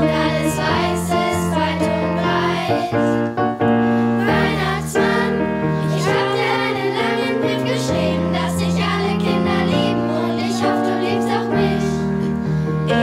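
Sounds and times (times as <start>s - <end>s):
children singing: 0.0s - 3.2s, 4.2s - 12.3s
instrumental accompaniment: 0.0s - 13.0s.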